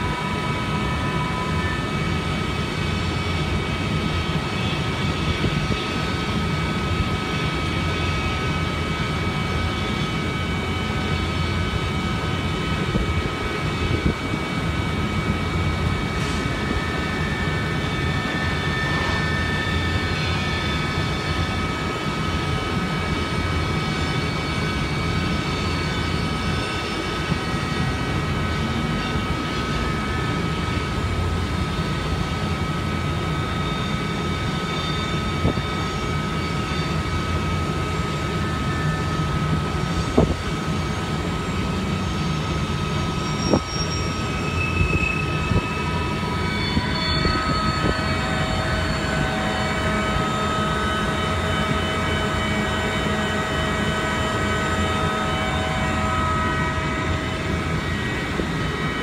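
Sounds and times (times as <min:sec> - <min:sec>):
freight train rumbling past: 0:00.0 - 0:59.0
high ringing tones: 0:31.6 - 0:59.0.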